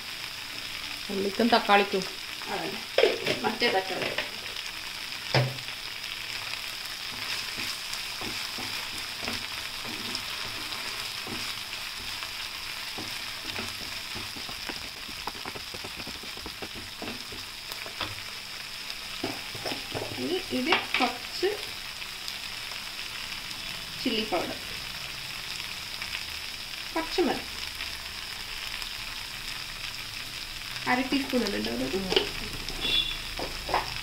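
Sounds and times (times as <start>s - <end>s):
vegetables sizzling in oil: 0.0s - 34.0s
wooden spatula scraping pan: 7.1s - 12.2s.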